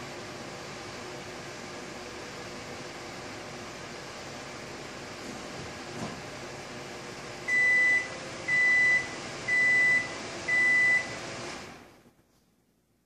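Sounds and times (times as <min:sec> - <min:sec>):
appliance running hum: 0:00.0 - 0:12.3
appliance beeping: 0:07.4 - 0:11.8.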